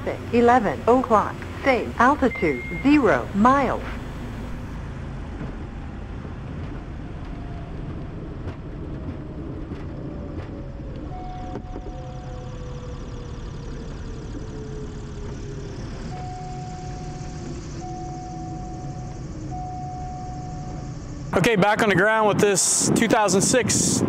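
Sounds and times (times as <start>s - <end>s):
aircraft engines rumbling: 0.0s - 24.0s
short beeps: 2.1s - 3.9s, 11.1s - 14.2s, 16.0s - 21.2s.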